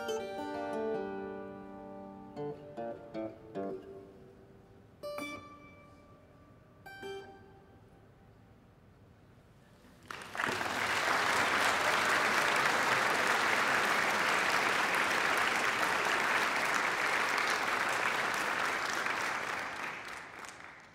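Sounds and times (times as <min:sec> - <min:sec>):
audience applauding: 0:10.0 - 0:20.9.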